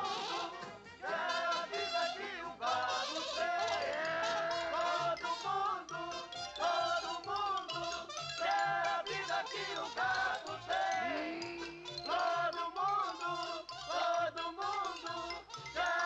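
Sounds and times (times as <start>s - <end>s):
lively jazz band music: 0.0s - 2.1s.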